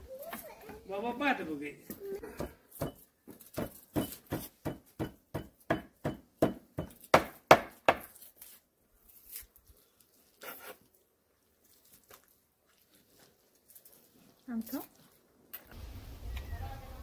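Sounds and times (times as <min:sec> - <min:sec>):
knife chopping on wooden board: 0:02.4 - 0:08.1.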